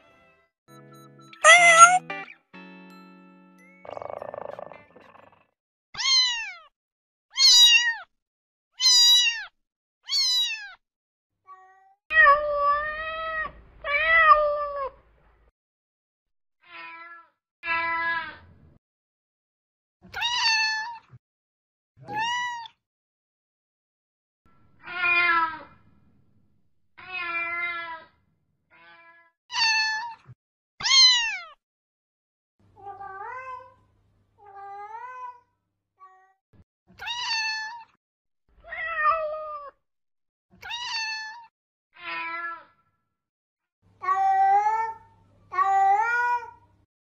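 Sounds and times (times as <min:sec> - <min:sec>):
cats meowing: 0:01.4 - 0:02.0.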